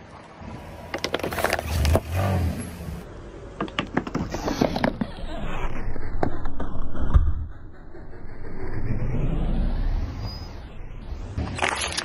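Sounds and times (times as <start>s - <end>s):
plastic bottles crackling under tyre: 0.8s - 2.3s, 3.6s - 5.0s, 11.4s - 12.0s
low rumble: 5.0s - 11.5s.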